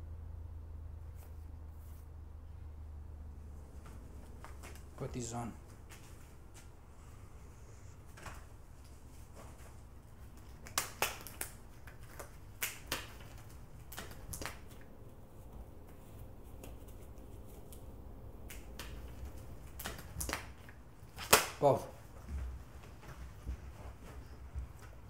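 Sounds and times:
low steady hum: 0.0 - 25.0
disposable gloves snapping and rustling: 9.3 - 14.9, 15.5 - 21.6.

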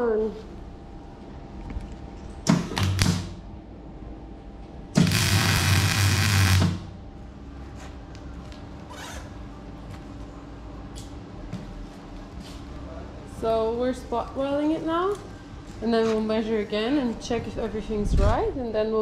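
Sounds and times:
low welder buzz: 2.4 - 7.6
welding arc crackle: 5.0 - 6.9.

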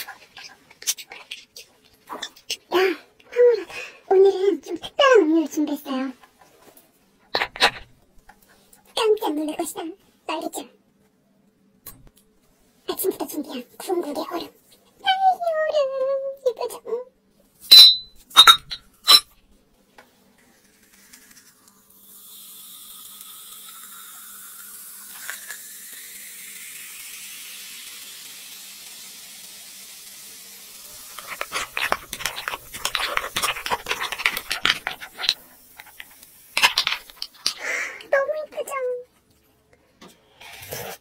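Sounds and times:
glass clinks: 17.7 - 19.3
fizzing drink stirred with straw: 20.4 - 37.6
fizzy drink pouring into glass: 20.6 - 37.6.

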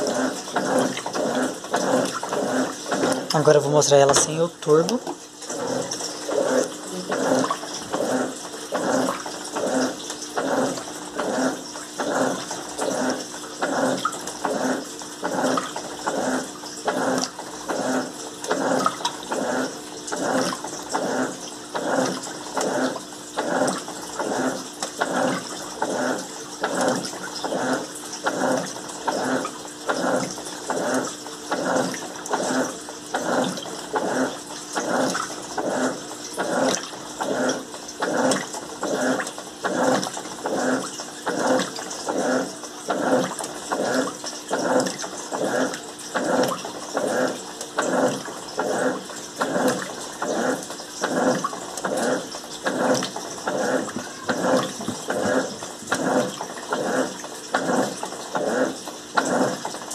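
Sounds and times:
washing machine churning water: 0.0 - 59.9.

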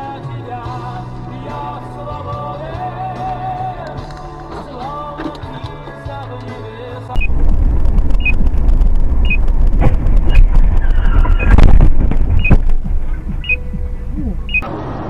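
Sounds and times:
music: 0.0 - 7.3, 12.4 - 14.6
vehicle and road rumble: 2.8 - 15.0
short electronic beep: 8.2 - 8.4, 9.2 - 9.4, 12.4 - 12.6, 13.4 - 13.8, 14.4 - 14.6.

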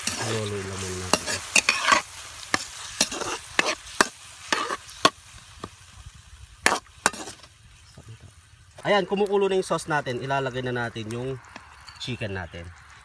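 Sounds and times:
spatula scraping metal wok: 0.0 - 5.3, 6.6 - 7.6
sauce sizzling: 0.0 - 13.0.

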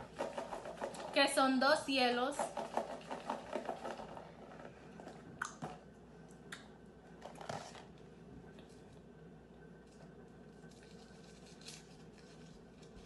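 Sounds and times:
plastic tub set on a table: 0.0 - 5.9, 7.2 - 8.0.

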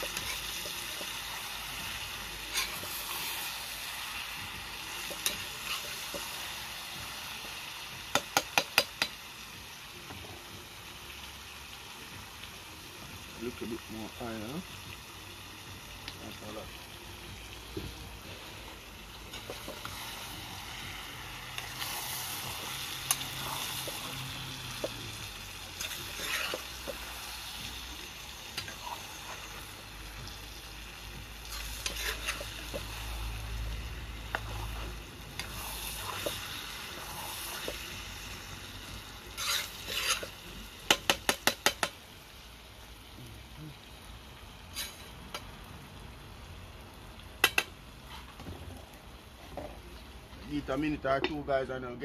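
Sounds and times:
food sizzling: 0.0 - 52.0
metal spoon scraping a pot: 2.5 - 2.9, 25.8 - 27.0, 31.5 - 32.6, 39.3 - 40.4, 44.7 - 45.1.

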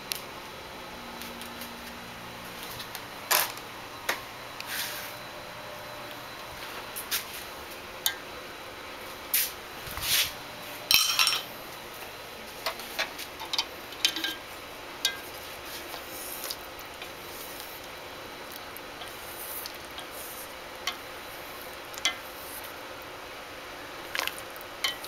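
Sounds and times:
utensils clinking on steel pot: 10.9 - 11.5, 12.6 - 15.3.

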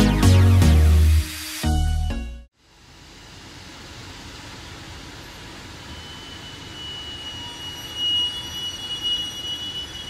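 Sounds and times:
high-pitched metallic squeal: 5.8 - 10.0.

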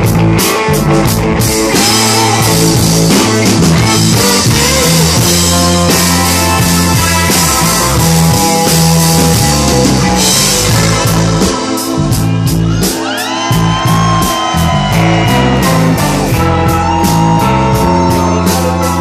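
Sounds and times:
rock band playing: 0.0 - 19.0.

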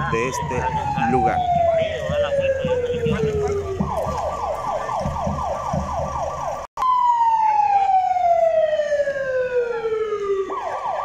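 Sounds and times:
electronic siren: 0.0 - 11.0.

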